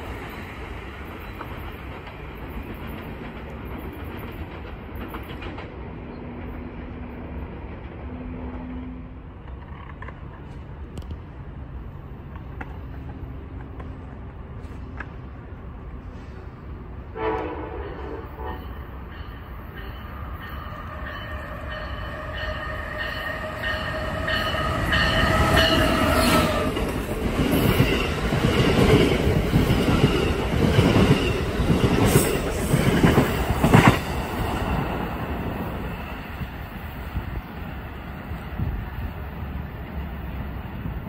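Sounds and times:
train rumble: 0.0 - 41.0
train whine: 0.0 - 41.0
wheels clacking over rail joints: 1.0 - 6.6.

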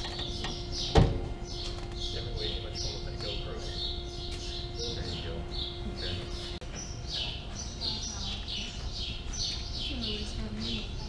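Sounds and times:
low steady rumble: 0.0 - 11.0
small birds chirping: 0.0 - 11.0.

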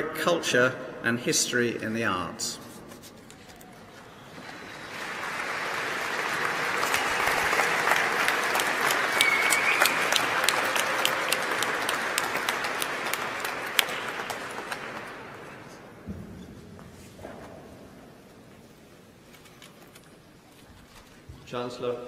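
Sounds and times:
audience applauding: 4.0 - 15.7.

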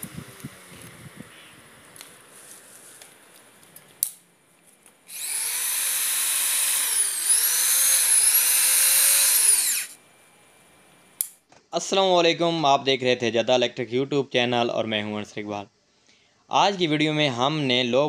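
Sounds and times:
electric drill running: 5.1 - 10.0.

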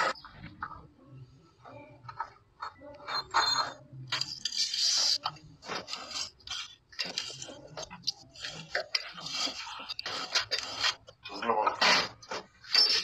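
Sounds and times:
metal scraping and clinking: 3.1 - 13.0.

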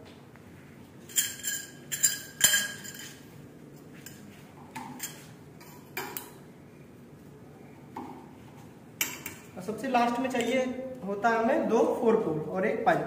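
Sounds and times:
metal pipes clinking: 1.1 - 3.2.

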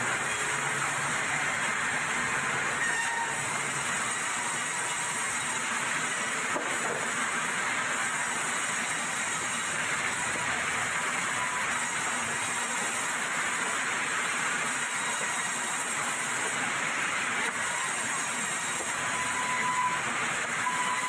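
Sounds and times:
band saw cutting log: 0.0 - 21.0.

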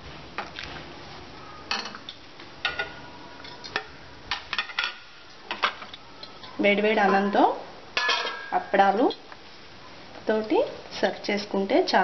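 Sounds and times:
steel ladle clinking on pot and glass: 8.0 - 8.6.

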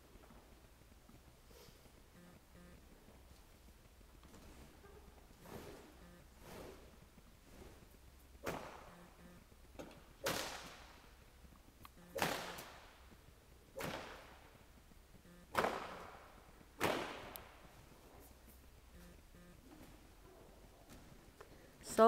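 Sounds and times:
whip cracking with echo: 8.4 - 8.9, 10.2 - 11.1, 12.1 - 13.0, 13.7 - 14.5, 15.5 - 17.6.

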